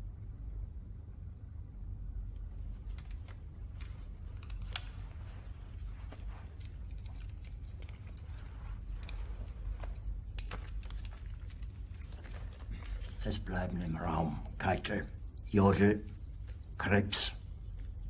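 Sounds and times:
low room rumble: 0.0 - 18.0
small clicks and rustles: 2.3 - 13.4.

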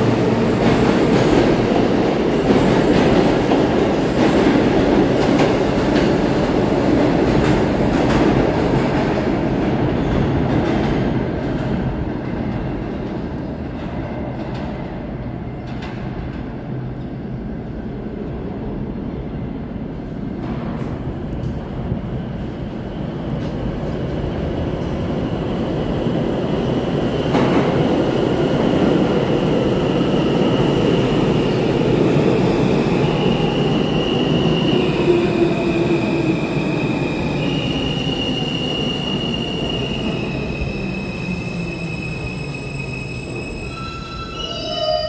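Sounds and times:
train wheels rumbling on rails: 0.0 - 44.4.

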